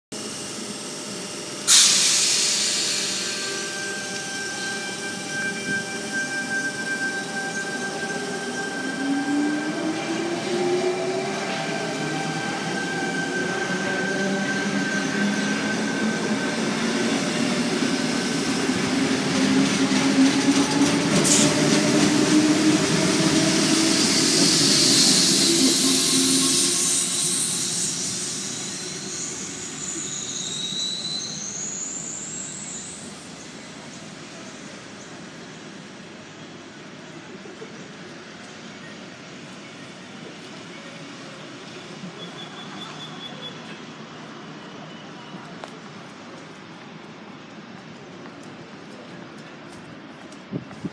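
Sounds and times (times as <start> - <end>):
train traction motor whine: 0.2 - 33.4
high wheel squeal: 1.7 - 10.6, 11.2 - 33.5.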